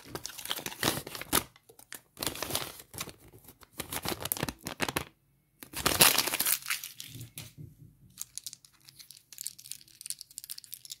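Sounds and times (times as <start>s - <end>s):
paper leaflet crinkling: 0.0s - 7.4s.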